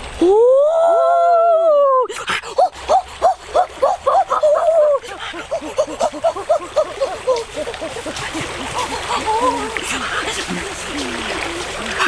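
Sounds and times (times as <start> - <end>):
boy howling: 0.2 - 9.8.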